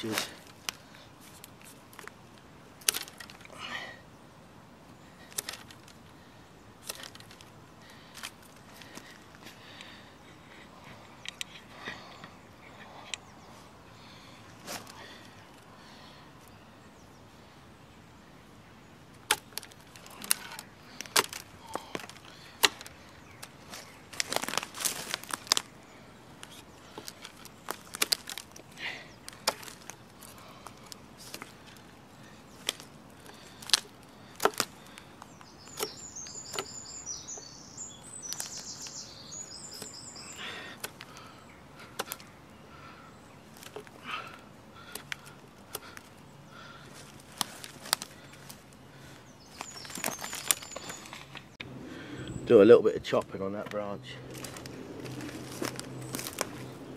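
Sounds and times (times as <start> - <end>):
knife cutting twigs: 0.0 - 3.6, 5.2 - 6.0, 6.8 - 9.9, 19.1 - 42.5, 43.4 - 48.8, 49.5 - 51.7, 53.6 - 56.9
bird chirping: 3.1 - 56.9.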